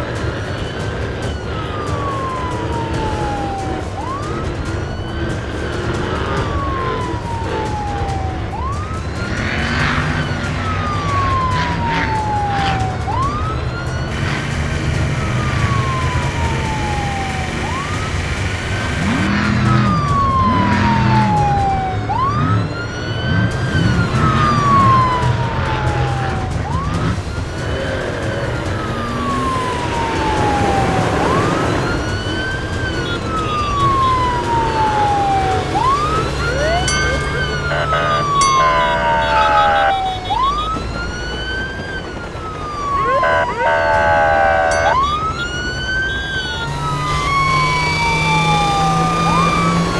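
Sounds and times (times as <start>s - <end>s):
low rumble of vehicle engines: 0.0s - 49.9s
police siren wailing: 0.0s - 49.9s.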